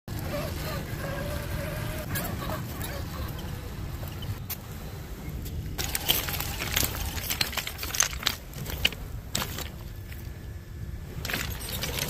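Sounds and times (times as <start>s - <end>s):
faint steady hum: 0.1s - 12.0s
beach stones clattering: 5.8s - 10.4s.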